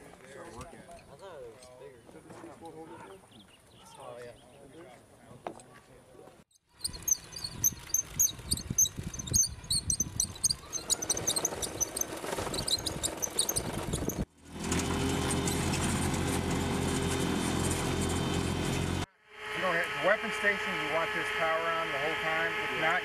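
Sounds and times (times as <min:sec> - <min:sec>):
robot tracks clicking and squeaking: 0:06.6 - 0:14.3
mechanical hum: 0:06.8 - 0:23.0.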